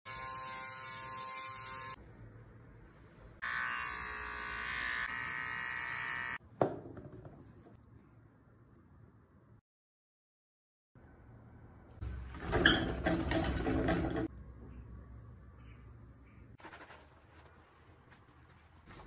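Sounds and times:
pet nail grinder buzzing: 0.1 - 2.0, 3.4 - 6.4.

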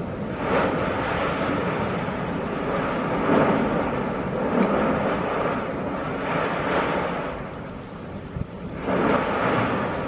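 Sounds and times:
lava rushing rumble: 0.0 - 10.0.

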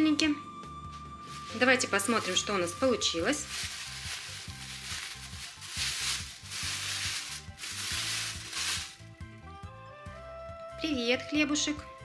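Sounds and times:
background music with bass line: 0.6 - 11.0
plastic bag crinkling: 1.3 - 9.0.

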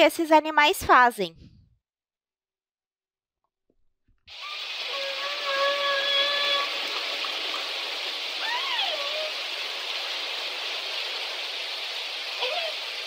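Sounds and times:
whale calls: 4.3 - 7.6, 8.2 - 9.7, 12.3 - 13.0
steady hiss: 4.3 - 13.0.

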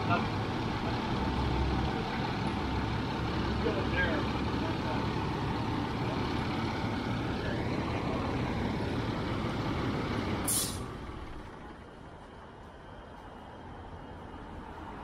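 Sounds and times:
fire truck engine rumble: 0.0 - 14.8
air brake hiss: 10.4 - 10.9.

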